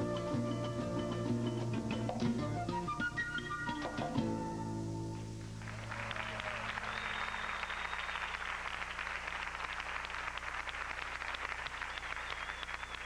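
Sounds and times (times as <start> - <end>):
thin high whistle-like tone: 2.4 - 5.3, 6.8 - 8.4, 12.0 - 13.0
audience applauding: 5.5 - 13.0.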